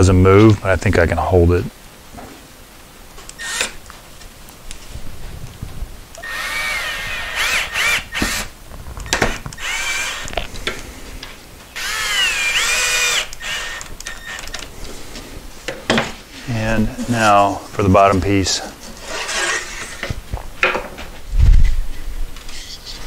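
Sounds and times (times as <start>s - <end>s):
cordless drill driving screws: 3.3s - 3.8s, 6.2s - 8.5s, 9.1s - 10.5s, 11.8s - 14.6s.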